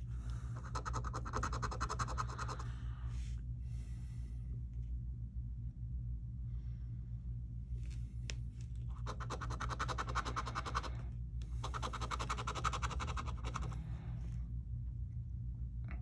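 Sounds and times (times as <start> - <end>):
coin scratching lottery ticket: 0.6 - 2.6, 8.9 - 10.9, 11.6 - 13.8.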